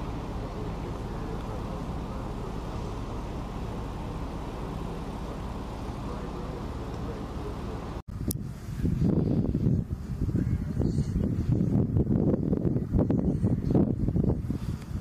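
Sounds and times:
faint voices: 0.0 - 9.1
low engine drone: 0.0 - 15.0.

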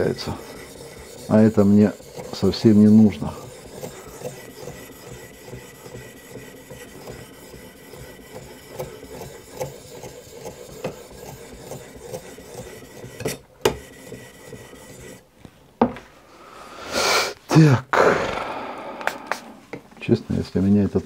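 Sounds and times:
abrasive scraping knife edge: 0.0 - 15.2.

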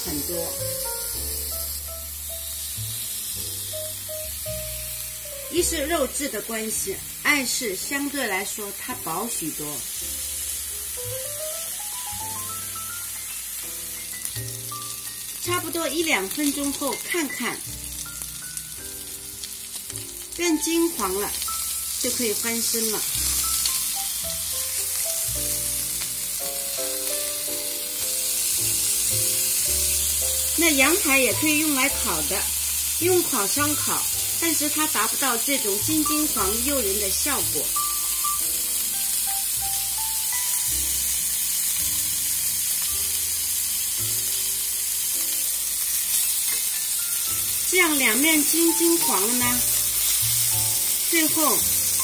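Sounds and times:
background music of held notes: 0.0 - 6.8, 10.0 - 52.0
meat sizzling in a frying pan: 0.0 - 52.0.

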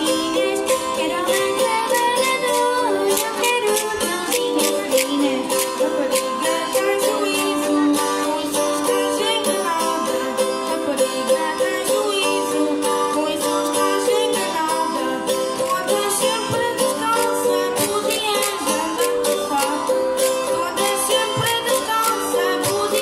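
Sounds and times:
folk group playing live: 0.0 - 23.0
strummed small string instruments: 0.0 - 23.0.

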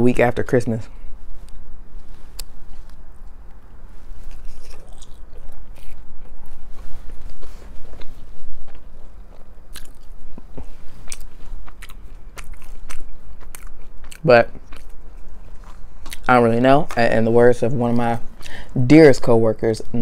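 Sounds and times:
biting and chewing crunchy food: 2.3 - 17.3.

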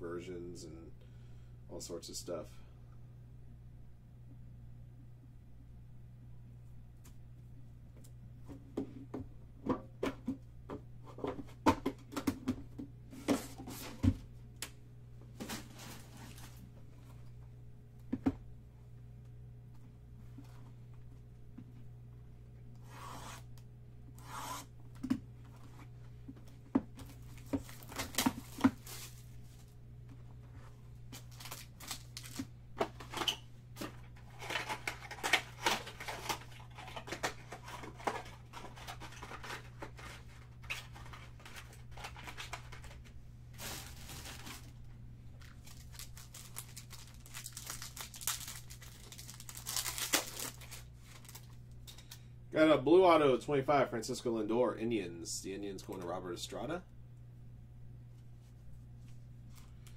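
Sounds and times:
plastic and foil tearing: 31.2 - 32.5, 34.2 - 43.0, 43.6 - 44.8, 45.4 - 51.6.

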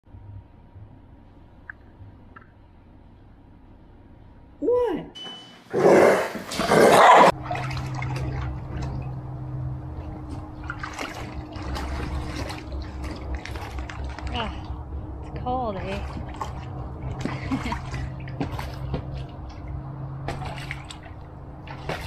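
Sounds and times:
water sloshing and splashing: 6.4 - 22.0.

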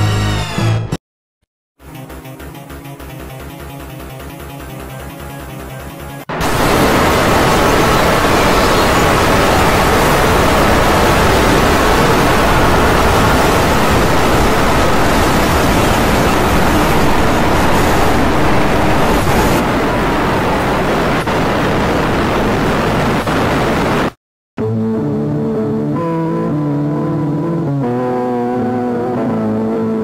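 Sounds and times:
harsh static noise: 4.6 - 24.2.

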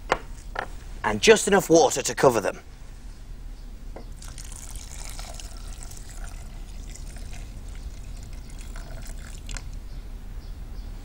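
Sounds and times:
water pouring into a saucepan: 4.2 - 9.8.

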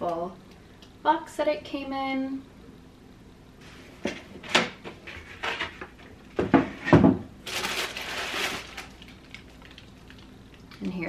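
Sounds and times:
crinkly wrapping rustling: 7.4 - 10.8.

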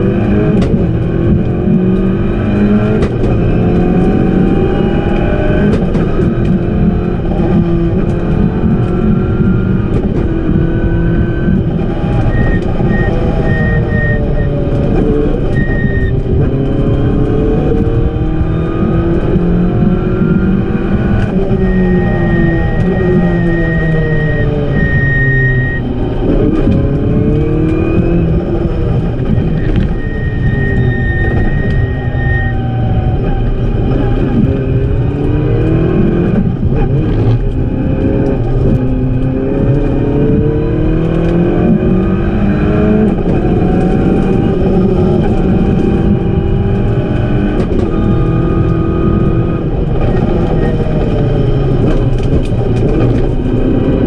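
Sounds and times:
car engine revving: 0.0 - 54.0
tyre and road rumble: 0.0 - 54.0
high steady beep: 12.3 - 14.6, 15.6 - 16.2, 21.6 - 25.9.

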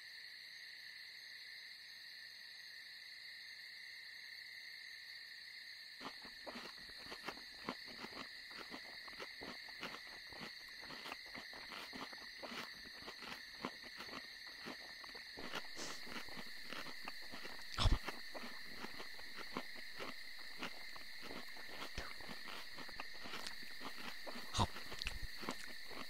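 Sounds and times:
cricket trill: 0.0 - 26.0
caterpillar munching a leaf: 6.0 - 26.0.

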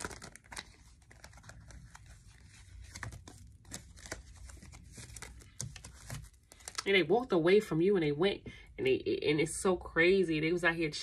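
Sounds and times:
cards rustling and clicking: 0.0 - 6.9.

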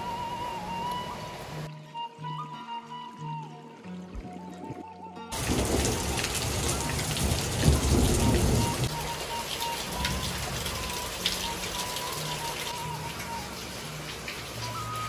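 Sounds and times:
rain falling: 0.0 - 1.7, 5.3 - 15.0.

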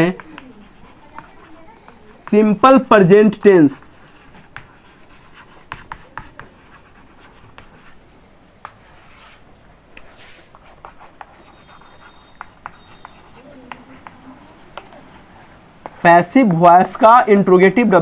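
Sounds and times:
chalk tapping and scratching: 0.0 - 8.0, 8.6 - 9.4, 10.0 - 17.1
chalk scraping a line: 10.0 - 15.2.

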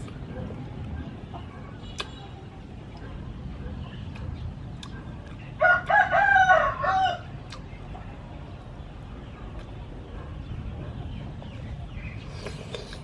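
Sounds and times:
rooster crowing: 5.6 - 7.3.

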